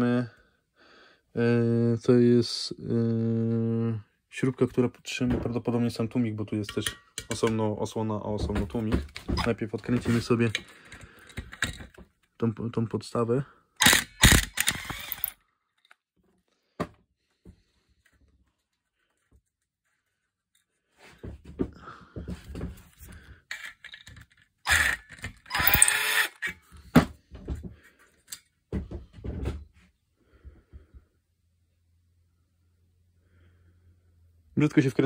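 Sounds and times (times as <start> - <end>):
screwdriver working bolts: 9.1 - 12.0, 13.8 - 16.0, 23.5 - 26.7.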